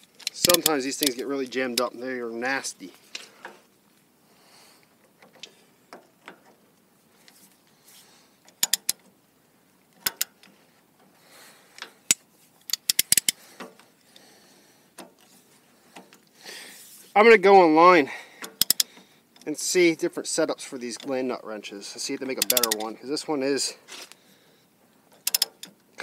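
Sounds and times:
wrench and ratchet metal clicks: 0:00.0 - 0:01.9, 0:08.5 - 0:09.1, 0:10.0 - 0:10.6, 0:11.8 - 0:13.4, 0:18.4 - 0:19.8, 0:22.0 - 0:23.0, 0:25.2 - 0:25.8.

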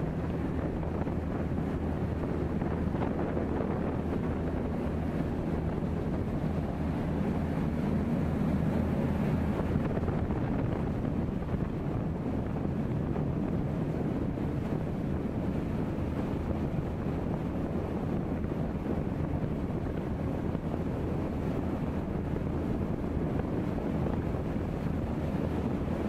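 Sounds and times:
boat engine droning: 0:00.0 - 0:26.0
bow wave rushing along hull: 0:00.0 - 0:26.0
wind buffeting microphone: 0:00.0 - 0:26.0.

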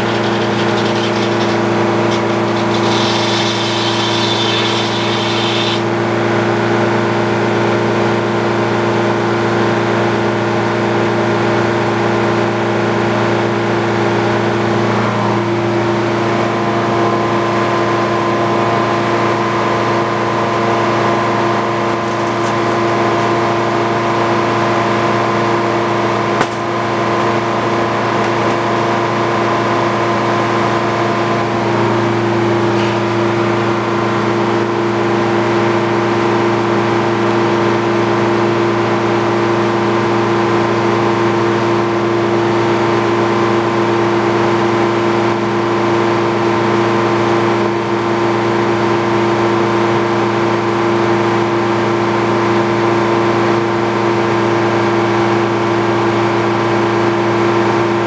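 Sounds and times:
circular saw blade spinning: 0:00.0 - 0:05.9, 0:21.4 - 0:24.1
engine hum: 0:00.0 - 0:08.5, 0:13.8 - 0:39.6.

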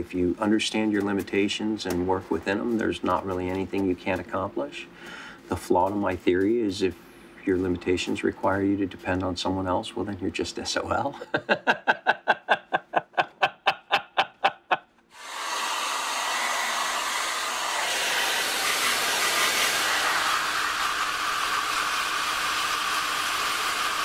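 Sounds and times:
man laughing: 0:11.0 - 0:15.0
hood hair dryer hissing: 0:15.1 - 0:24.0.

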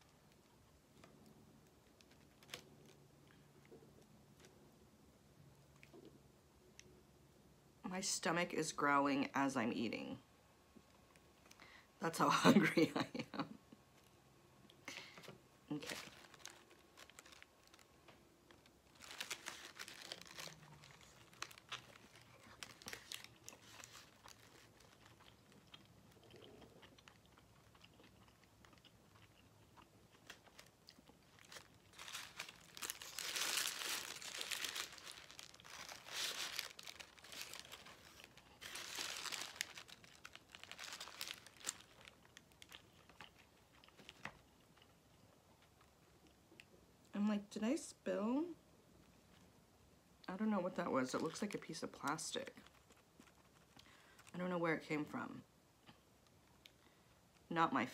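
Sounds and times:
paper wrapper crinkling: 0:01.6 - 0:03.1, 0:15.0 - 0:25.8, 0:30.1 - 0:44.4, 0:51.2 - 0:54.3
quiet chewing: 0:13.9 - 0:46.9, 0:52.4 - 0:54.3, 0:55.8 - 0:57.5.

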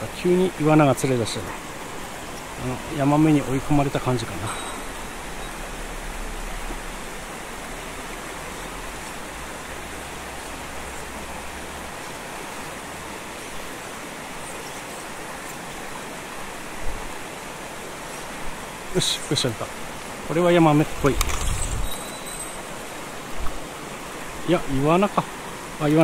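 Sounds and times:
water rushing over rocks: 0:00.0 - 0:26.0.

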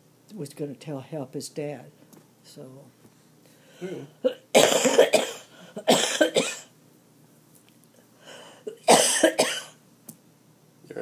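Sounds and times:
person coughing: 0:03.8 - 0:06.7, 0:08.7 - 0:09.8.

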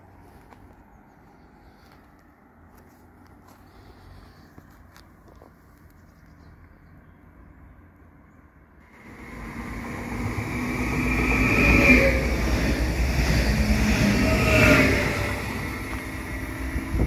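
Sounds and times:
electric train whine: 0:08.9 - 0:17.0
train wheels running: 0:09.0 - 0:17.0.

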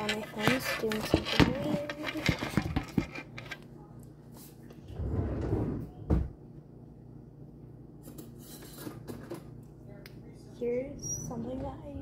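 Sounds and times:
cupboard rumbling: 0:00.0 - 0:03.6, 0:04.8 - 0:06.4.

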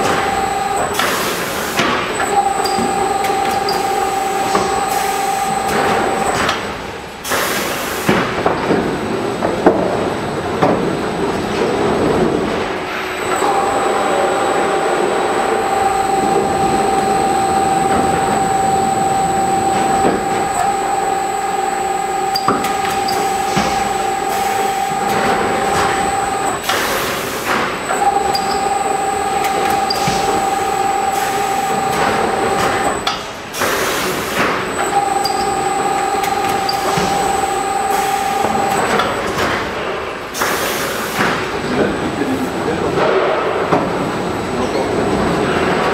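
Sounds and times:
wrapping machine whine: 0:00.0 - 0:45.9
loud burst of noise: 0:11.8 - 0:39.3.

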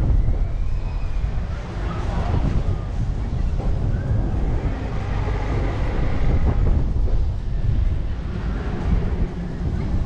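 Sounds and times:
wind buffeting camera microphone: 0:00.0 - 0:10.0.

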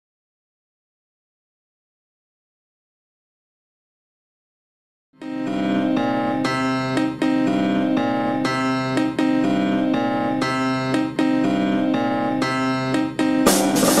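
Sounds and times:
keyboard playing chords: 0:05.2 - 0:14.0
drums: 0:13.4 - 0:14.0.

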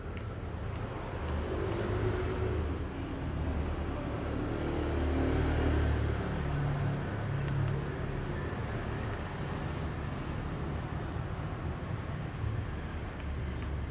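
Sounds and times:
cat crunching dry kibble: 0:00.0 - 0:02.1, 0:07.0 - 0:10.7.

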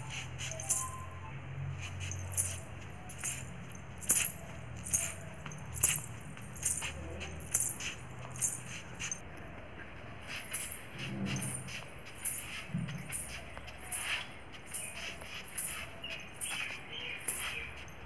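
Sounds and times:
ankle bells jingling: 0:00.0 - 0:09.2, 0:10.4 - 0:18.0.

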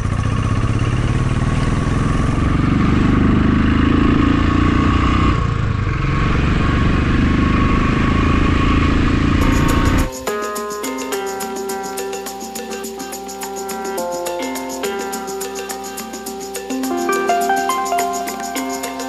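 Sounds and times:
motorcycle engine running: 0:00.0 - 0:10.5.

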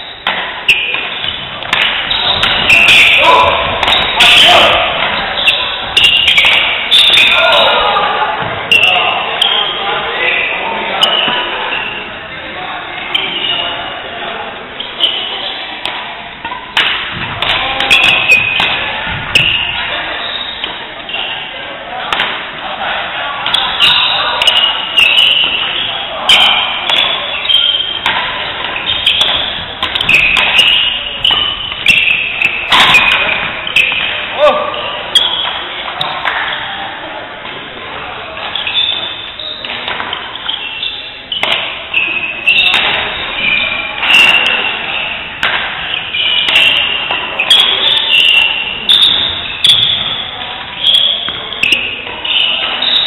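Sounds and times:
court shoes squeaking: 0:00.0 - 0:53.0
racquets hitting shuttlecock: 0:00.2 - 0:07.4, 0:15.8 - 0:19.9, 0:22.1 - 0:22.6, 0:23.4 - 0:36.6, 0:38.4 - 0:53.0.

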